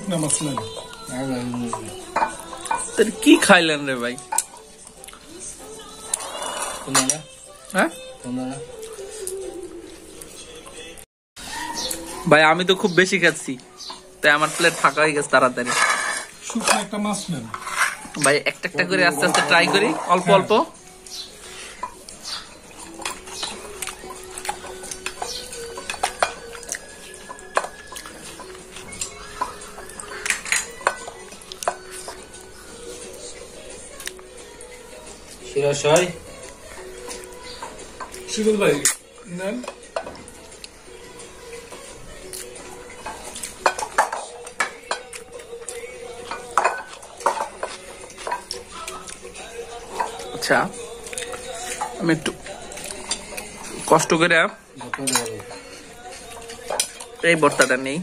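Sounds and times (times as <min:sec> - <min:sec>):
plates and bowls clinking: 0:00.0 - 0:05.2, 0:05.9 - 0:07.3, 0:13.1 - 0:33.2, 0:36.8 - 0:40.6, 0:41.5 - 0:58.0
metal spoon clinking on ceramic: 0:45.8 - 0:48.6.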